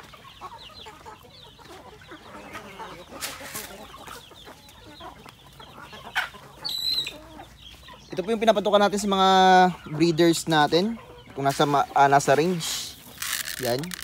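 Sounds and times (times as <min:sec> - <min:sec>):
chickens clucking: 0:00.0 - 0:14.0
rustle: 0:12.6 - 0:14.0.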